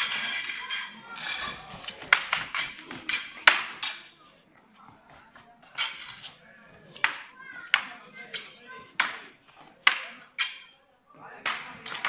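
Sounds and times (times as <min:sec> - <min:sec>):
spears clashing: 0:00.0 - 0:04.2.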